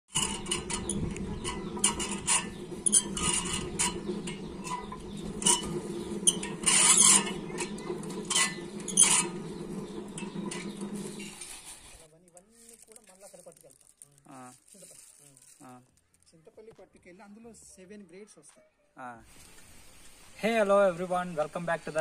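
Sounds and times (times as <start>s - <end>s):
hand-cranked huller humming: 0.1s - 12.0s
loud clattering bursts: 0.1s - 12.0s
coffee beans rattling and clicking: 0.1s - 16.6s.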